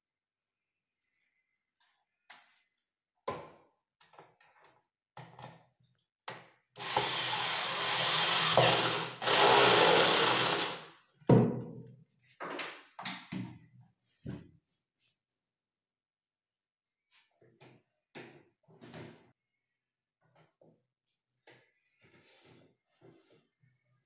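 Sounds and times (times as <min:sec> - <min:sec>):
electric drill into wood: 0:06.8 - 0:10.9.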